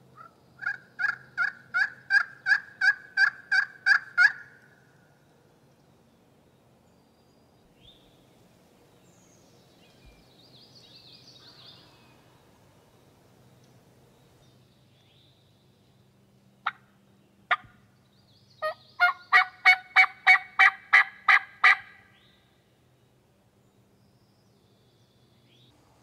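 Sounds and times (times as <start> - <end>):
turkey yelps: 0.2 - 4.6, 18.6 - 22.0
faint high bird chirps: 9.0 - 19.6.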